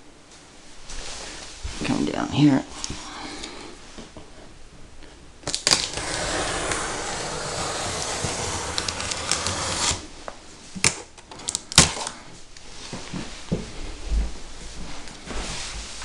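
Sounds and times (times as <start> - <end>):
packing tape being slit open: 5.4 - 10.1, 10.8 - 12.2.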